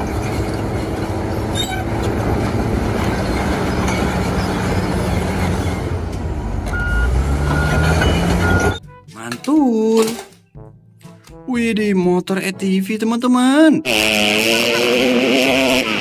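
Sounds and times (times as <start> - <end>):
clatter of steel tracks: 0.0 - 6.3
bulldozer diesel engine under load: 0.0 - 8.8
reversing alarm beeping: 6.7 - 8.8.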